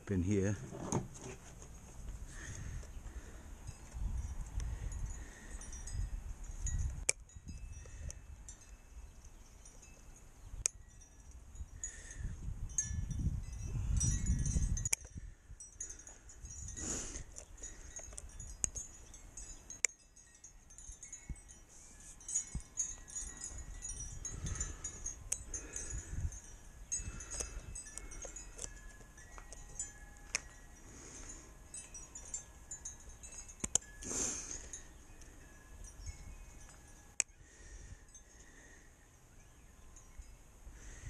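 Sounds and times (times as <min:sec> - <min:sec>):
faint ringing notes: 0:17.4 - 0:41.0.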